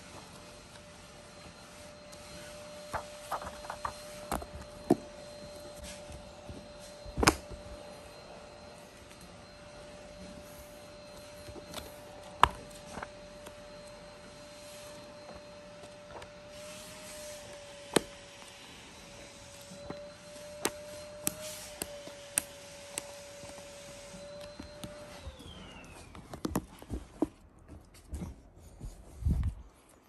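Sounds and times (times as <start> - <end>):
faint hum: 0.0 - 30.0
book pages turning: 2.1 - 7.6.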